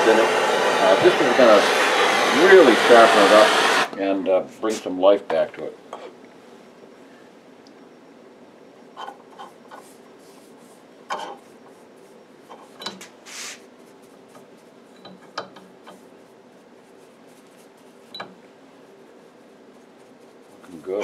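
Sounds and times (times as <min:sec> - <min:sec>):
faint steady hum: 0:03.9 - 0:21.0
short rubbing swish: 0:13.2 - 0:13.7.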